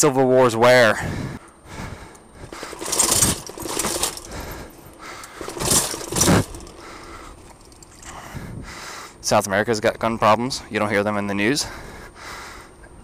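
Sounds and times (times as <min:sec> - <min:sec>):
wheels rattling over stone steps: 0:01.8 - 0:08.4.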